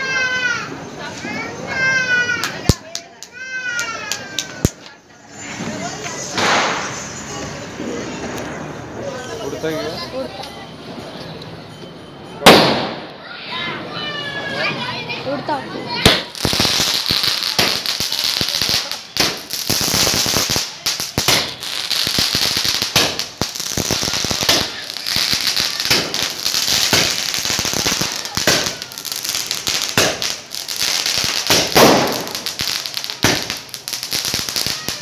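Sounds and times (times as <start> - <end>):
fireworks popping and crackling: 1.6 - 9.4, 12.4 - 13.1, 15.8 - 35.0
firework hiss: 3.5 - 9.1, 15.9 - 35.0
firework bang: 6.2 - 8.8, 12.4 - 13.2, 15.9 - 33.6.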